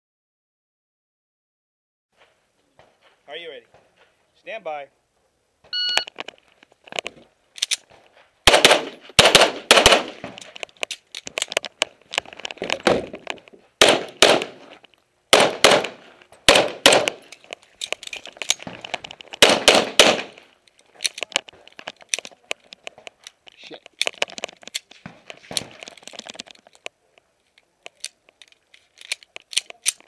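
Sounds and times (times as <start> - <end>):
pistol shots with short echo: 8.5 - 10.2, 13.8 - 14.6, 15.3 - 17.2, 19.4 - 20.4.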